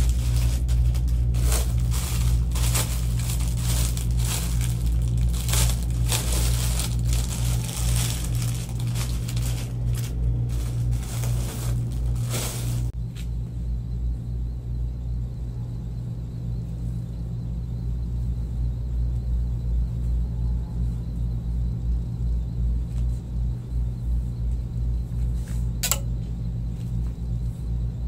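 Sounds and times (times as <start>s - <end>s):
plastic bags crinkling: 0.0s - 12.9s
steady low hum: 0.0s - 28.0s.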